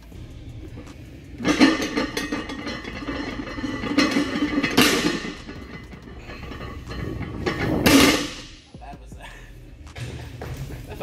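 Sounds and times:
barbell plates clanking: 0:00.6 - 0:08.6.

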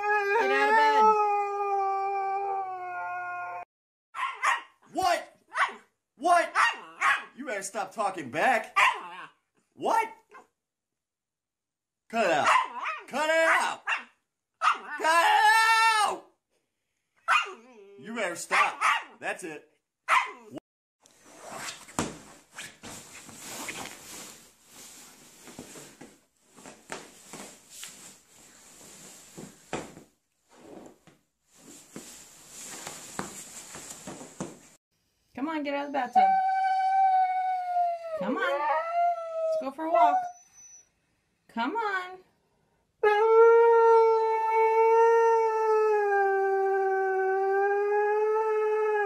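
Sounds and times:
dog howling: 0:00.0 - 0:03.7, 0:36.1 - 0:40.4, 0:43.0 - 0:49.0
fabric rustling and scratching: 0:21.2 - 0:34.8
short knocks and scuffs: 0:30.8 - 0:34.8.

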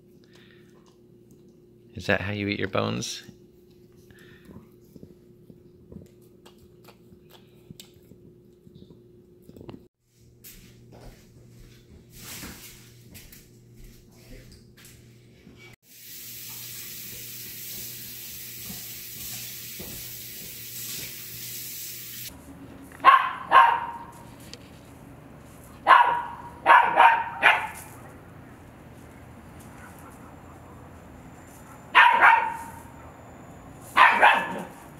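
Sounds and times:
steady hiss: 0:15.9 - 0:22.3
husky barking: 0:23.0 - 0:24.2, 0:25.8 - 0:28.6, 0:29.5 - 0:33.3, 0:33.9 - 0:34.9.

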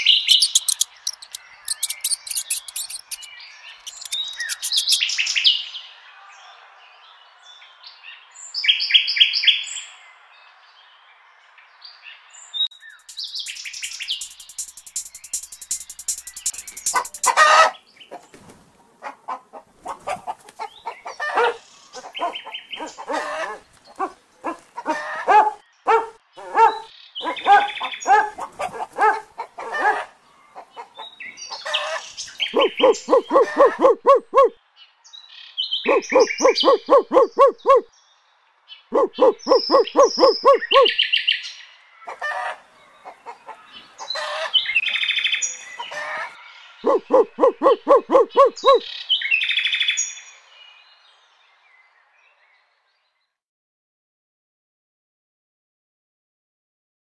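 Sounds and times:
small birds chirping: 0:00.0 - 0:05.4, 0:12.7 - 0:18.5, 0:19.3 - 0:34.6, 0:35.6 - 0:37.9, 0:38.9 - 0:49.6
rooster clucking and squawking: 0:00.3 - 0:03.3, 0:03.9 - 0:05.0, 0:13.6 - 0:18.3, 0:19.0 - 0:25.4, 0:27.2 - 0:34.6, 0:35.9 - 0:37.9, 0:39.0 - 0:41.0, 0:42.1 - 0:44.7, 0:45.8 - 0:48.8.

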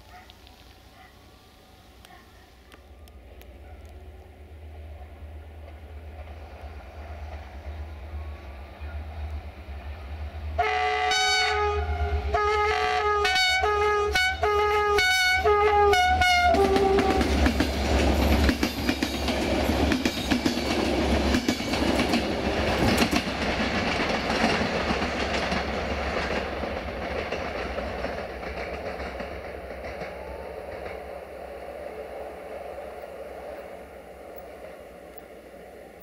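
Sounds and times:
train rumbling past: 0:00.7 - 0:36.0
locomotive air horn blasts: 0:10.6 - 0:17.4
wheels clacking over rail joints: 0:16.4 - 0:31.7.

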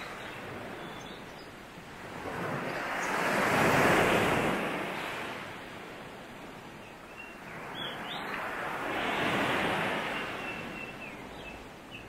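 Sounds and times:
faint bird chirp: 0:00.0 - 0:01.6, 0:06.8 - 0:08.4, 0:10.0 - 0:12.0
sea waves on a beach: 0:00.0 - 0:12.0.

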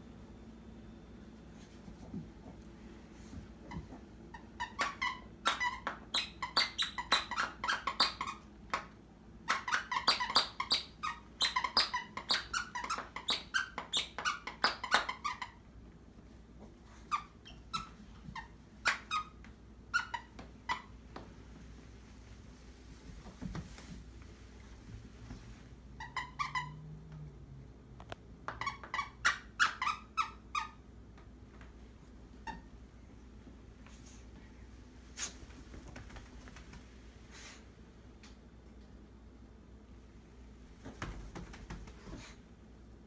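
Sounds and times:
toy squeaker squeaking: 0:09.5 - 0:15.5.

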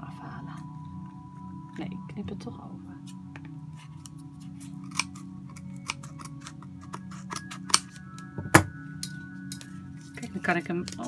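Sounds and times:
scissors snipping paper: 0:04.8 - 0:08.0.

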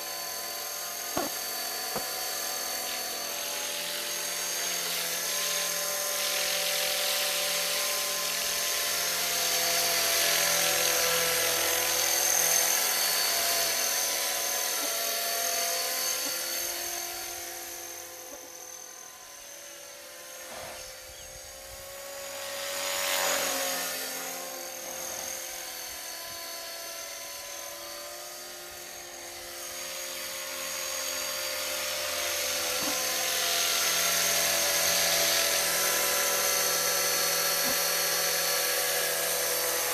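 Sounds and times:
model helicopter motor whine: 0:00.0 - 0:39.9.

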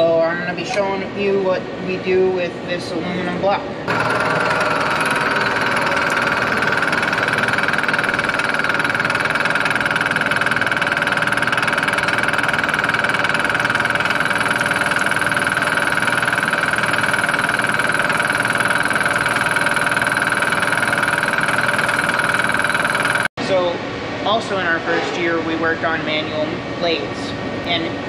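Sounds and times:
milling machine cutting metal: 0:03.9 - 0:23.3.

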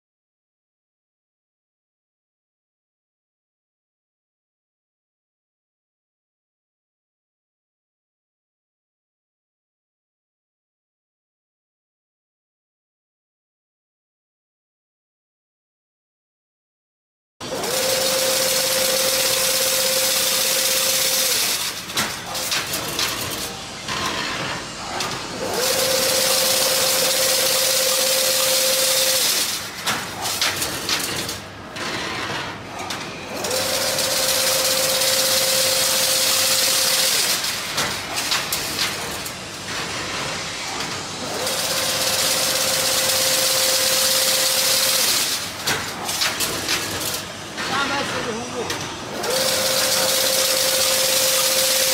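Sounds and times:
fence machine whirring with hum: 0:17.5 - 0:51.9
machine clicking and clattering: 0:17.8 - 0:51.9.

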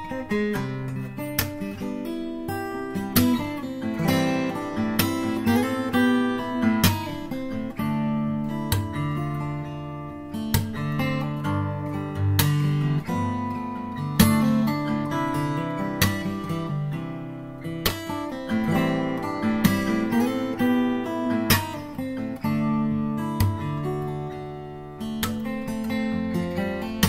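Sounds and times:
acoustic guitar strumming: 0:00.0 - 0:27.0.

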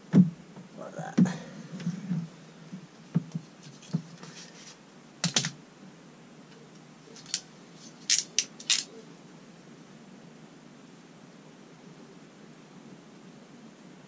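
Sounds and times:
clicks and taps handling cable: 0:05.2 - 0:05.6.

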